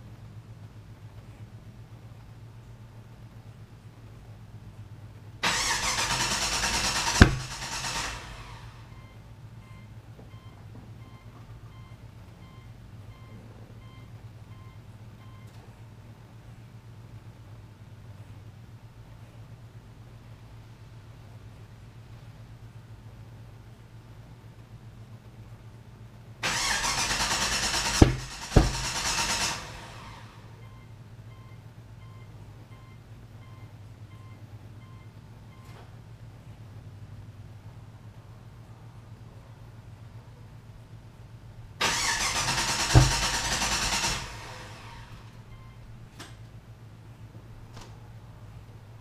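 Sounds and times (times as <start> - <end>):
engine cranking on starter: 5.4 - 8.9, 26.4 - 30.5, 41.8 - 45.4
heavy exhaust thumps: 7.1 - 7.7, 27.9 - 29.3, 42.8 - 43.6
loud low thump: 28.0 - 28.9.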